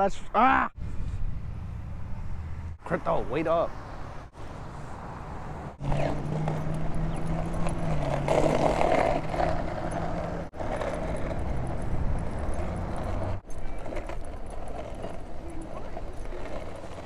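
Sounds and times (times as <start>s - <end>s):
street traffic: 0.0s - 17.0s
skateboard wheels rolling on asphalt: 2.8s - 17.0s
low engine hum: 4.6s - 13.5s.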